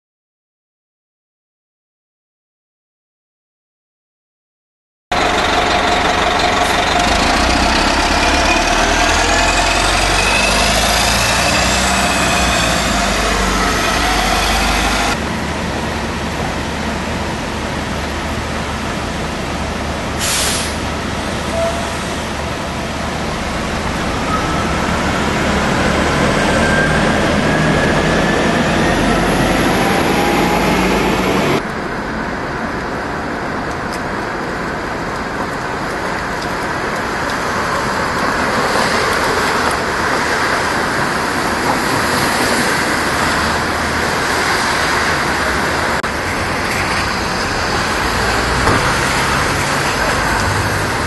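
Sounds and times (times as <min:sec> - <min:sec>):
bus engines running: 0:05.1 - 0:51.0
tyres hissing on wet pavement: 0:18.9 - 0:25.7
brief hiss: 0:20.2 - 0:20.8.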